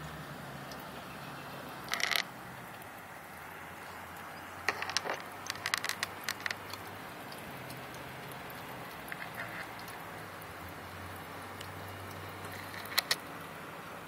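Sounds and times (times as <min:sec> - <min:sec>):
steady outdoor hiss: 0:00.0 - 0:14.0
sharp ticks and clicks: 0:01.8 - 0:02.9, 0:04.6 - 0:10.0, 0:11.6 - 0:13.3.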